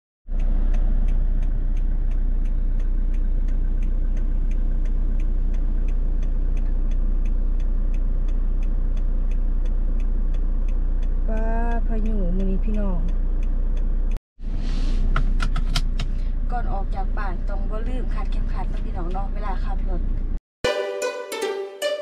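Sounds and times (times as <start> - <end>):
rapid regular ticking: 0.3 - 14.2
car engine hum: 0.3 - 20.4.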